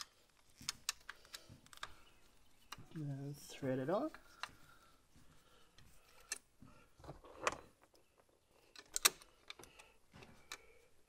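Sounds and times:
metal parts clicking and tapping: 0.0s - 3.0s, 7.1s - 10.7s.

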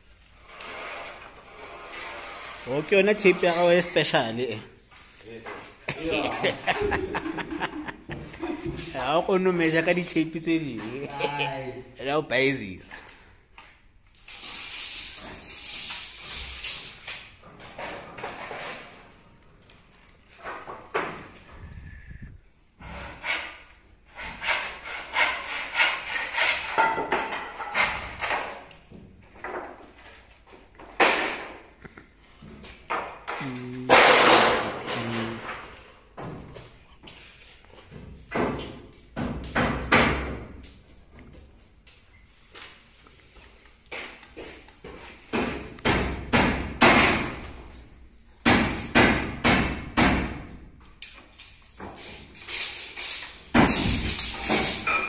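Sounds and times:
hammer blows ringing in a room: 48.4s - 50.5s.

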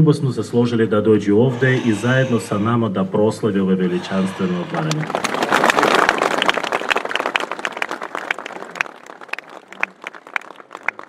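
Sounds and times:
crowd applauding: 4.0s - 11.0s.

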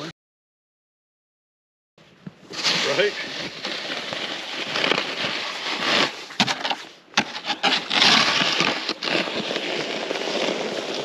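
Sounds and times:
boots crunching through snow: 2.5s - 11.0s
snow shovel scraping on ice: 2.5s - 11.0s.

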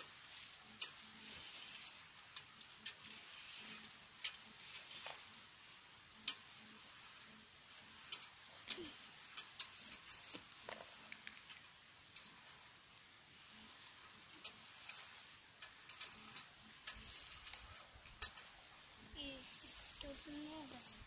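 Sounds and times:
faint steady hiss: 0.0s - 21.0s
shrubs rustling and crackling: 0.0s - 21.0s.

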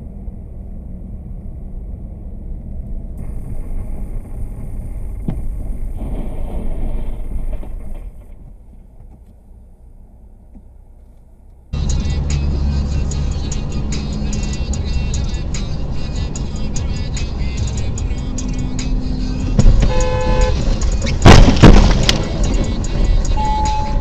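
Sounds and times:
car road and engine noise: 0.0s - 24.0s.

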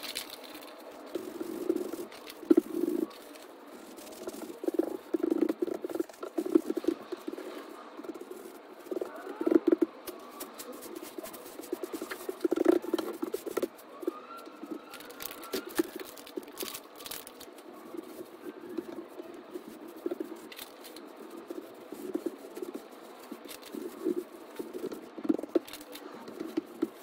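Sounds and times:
drawing stick scraping on paper: 0.0s - 27.0s
hands and rag rubbing paper: 0.0s - 27.0s.

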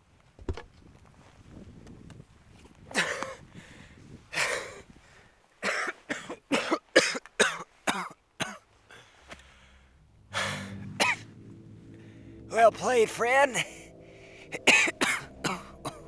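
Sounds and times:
woman coughing: 5.6s - 8.6s, 11.0s - 11.2s, 14.7s - 16.0s
breathy exhale with groan: 8.9s - 11.2s, 11.9s - 12.4s, 14.0s - 16.0s.

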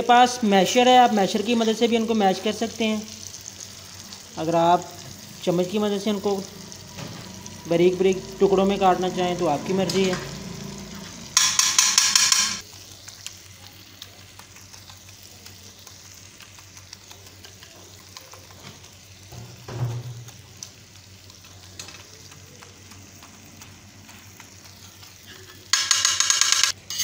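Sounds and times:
food sizzling in oil: 0.0s - 27.0s
spoon scraping metal pan: 25.3s - 27.0s.

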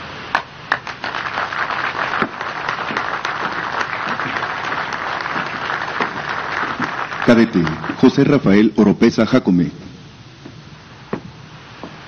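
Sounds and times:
crowd applauding: 0.7s - 8.6s.

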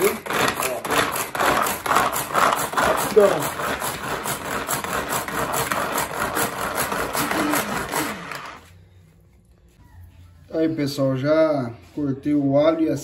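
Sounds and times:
hand food chopper whirring: 0.0s - 8.6s.

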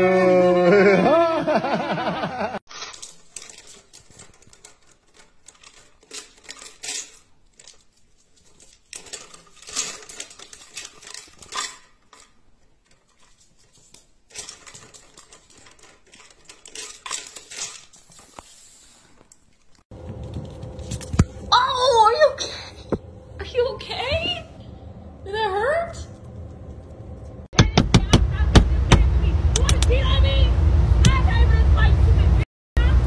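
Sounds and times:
dry food rattling in plastic feeder: 2.8s - 18.2s.

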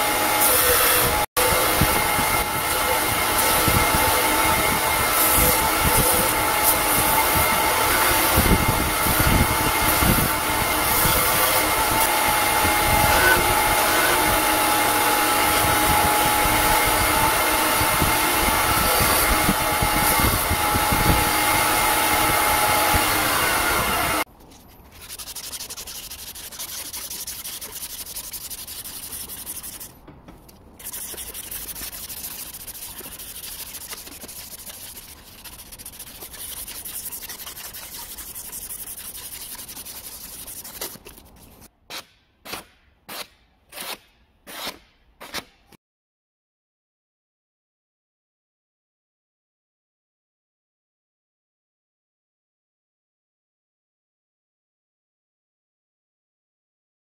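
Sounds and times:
belt grinder grinding wood: 0.0s - 24.2s
abrasive strip rubbing wood: 24.4s - 45.5s.

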